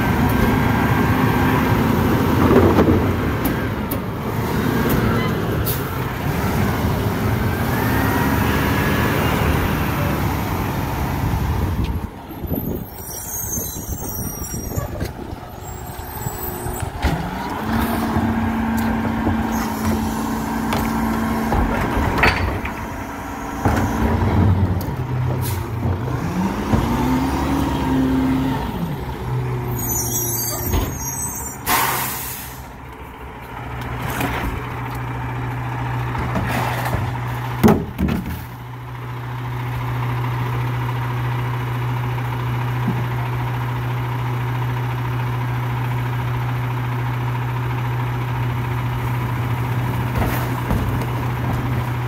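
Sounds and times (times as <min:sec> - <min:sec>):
truck diesel engine revving: 0:00.0 - 0:37.6.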